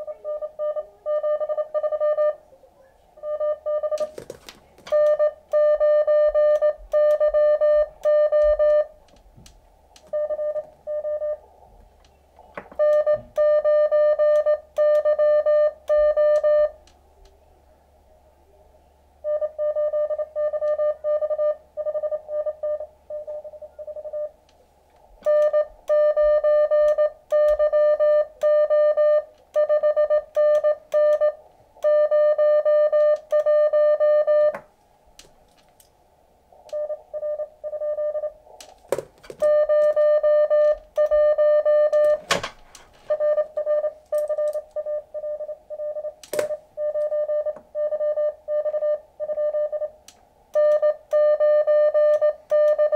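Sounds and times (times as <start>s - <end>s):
morse code beeps: 0.0s - 2.4s, 3.2s - 4.2s, 4.9s - 9.0s, 10.0s - 11.4s, 12.7s - 16.8s, 19.2s - 24.4s, 25.2s - 34.6s, 36.7s - 38.4s, 39.4s - 50.0s, 50.6s - 52.9s.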